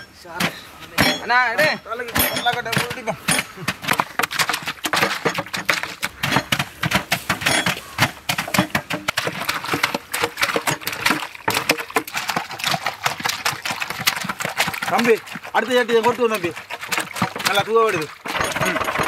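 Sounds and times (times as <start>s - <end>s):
grapes crushing with crackles: 0.2s - 19.0s.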